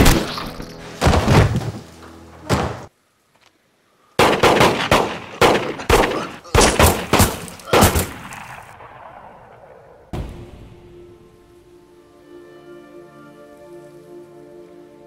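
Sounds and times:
bullets kicking up sand: 4.2s - 8.8s
rapid gunshots: 4.2s - 10.2s.

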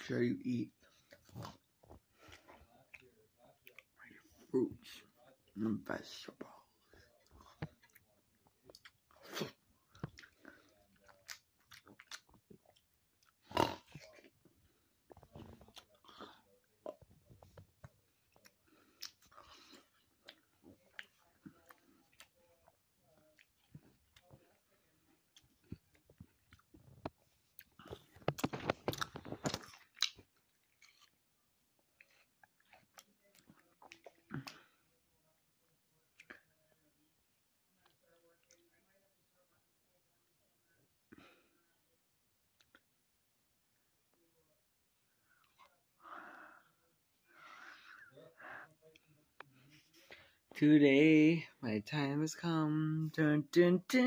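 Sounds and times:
person chewing fruit: 0.8s - 4.2s, 6.4s - 35.0s, 42.5s - 43.0s.

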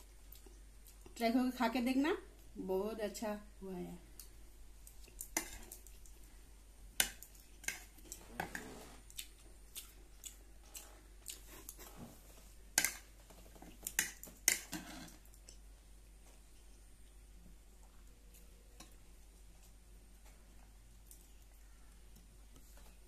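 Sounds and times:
chewing food: 0.0s - 1.2s, 7.0s - 23.0s.

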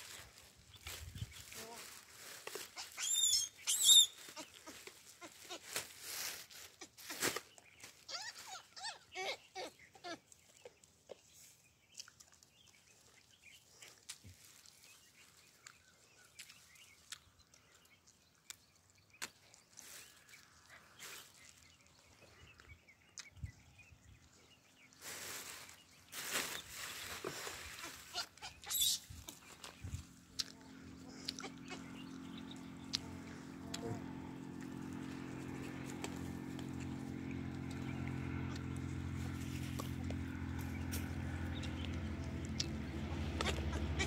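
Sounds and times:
baboons squealing: 2.6s - 5.8s, 7.9s - 10.3s, 27.7s - 29.2s, 31.1s - 32.1s, 43.2s - 44.0s.

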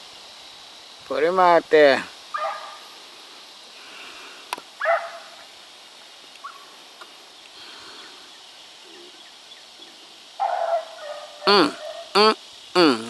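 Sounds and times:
dog barking: 2.3s - 2.9s, 4.8s - 5.4s, 10.4s - 12.1s.

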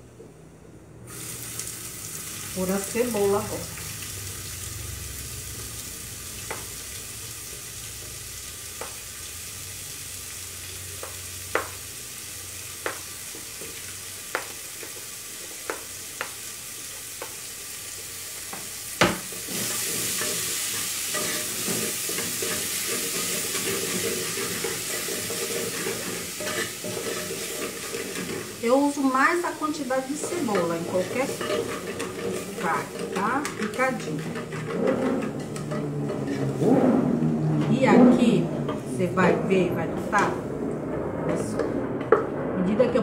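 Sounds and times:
onion sizzling in oil: 1.1s - 36.4s
wooden spoon knocking and scraping: 30.2s - 36.6s.

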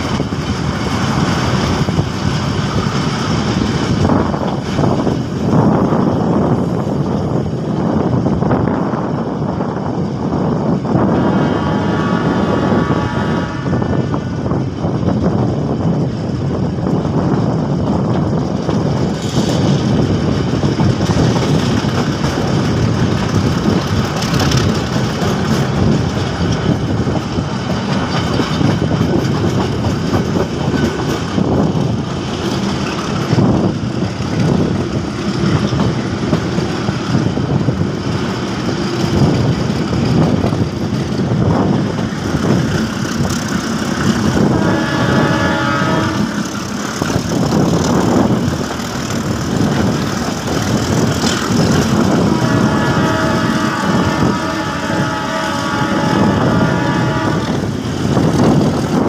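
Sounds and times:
train engine and running gear rumble: 0.0s - 59.0s.

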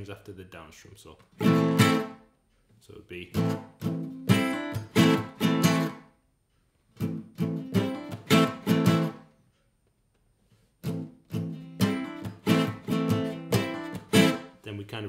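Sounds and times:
acoustic guitar strumming muted: 1.4s - 2.2s, 3.2s - 6.1s, 7.0s - 9.3s, 10.8s - 14.6s.

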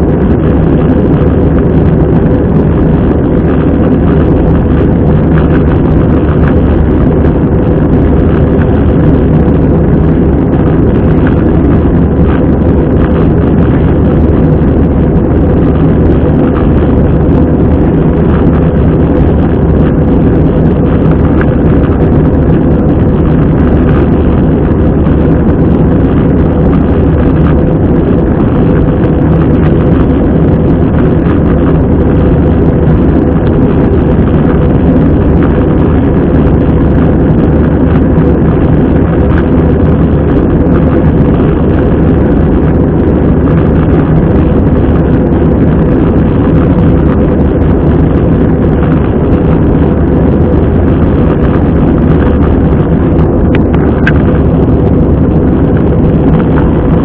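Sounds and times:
airplane cabin noise: 0.0s - 57.0s.

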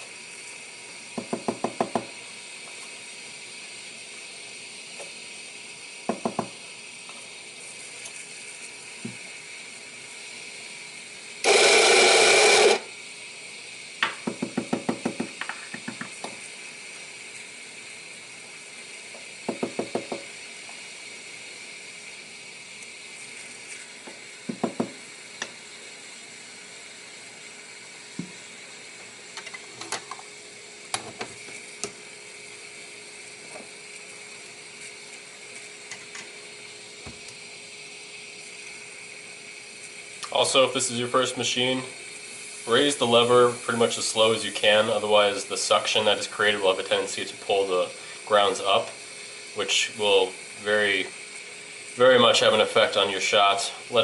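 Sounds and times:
loud noise: 11.4s - 12.9s
faint steady hiss: 15.2s - 54.0s.

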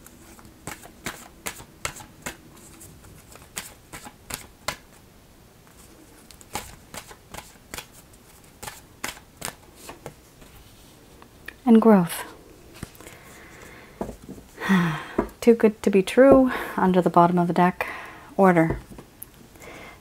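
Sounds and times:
cards shuffled in hands: 5.7s - 10.5s.

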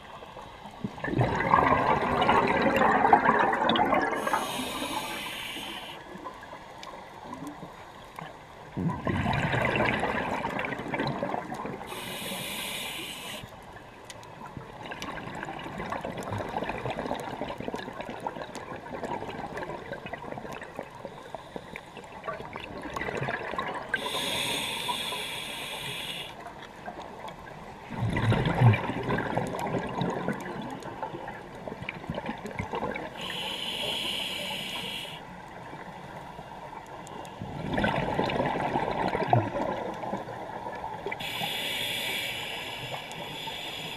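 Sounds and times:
exhaled bubbles underwater: 0.0s - 6.5s, 8.6s - 13.4s, 14.4s - 21.1s, 22.0s - 36.0s, 36.8s - 43.9s
regulator hissing inhale: 4.2s - 6.2s, 11.8s - 13.6s, 24.0s - 26.4s, 33.1s - 35.3s, 41.2s - 43.9s.

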